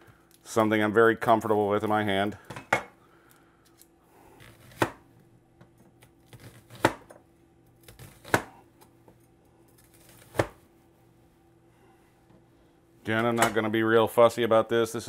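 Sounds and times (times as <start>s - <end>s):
knife chopping on cutting board: 4.5s - 5.0s, 6.3s - 7.1s, 7.8s - 8.6s, 10.1s - 10.6s.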